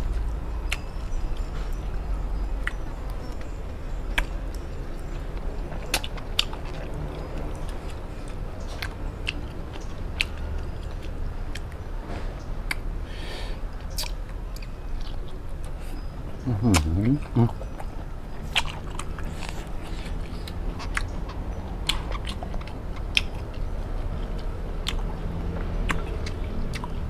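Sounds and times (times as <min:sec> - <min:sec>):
chewing food: 0:00.0 - 0:12.9, 0:13.7 - 0:27.0
wet mouth clicks and lip smacks: 0:13.9 - 0:15.8.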